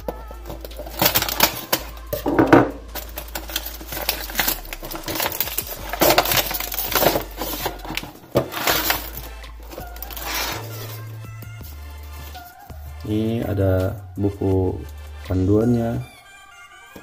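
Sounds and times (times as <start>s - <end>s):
cardboard and plastic scraping: 0.0s - 11.1s.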